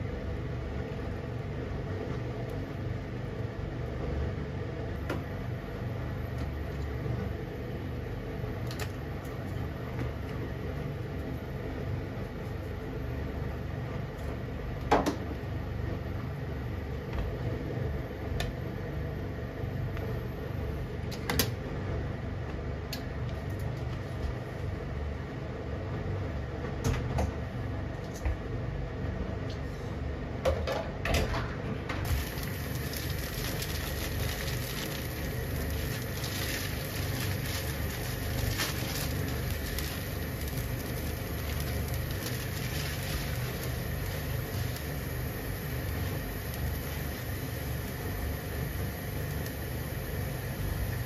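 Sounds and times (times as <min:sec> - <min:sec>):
noodles boiling hiss: 0:32.1 - 0:51.0.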